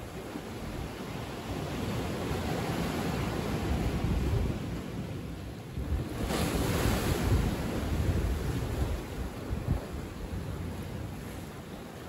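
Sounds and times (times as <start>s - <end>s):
ocean surf washing over sand: 0.0s - 12.0s.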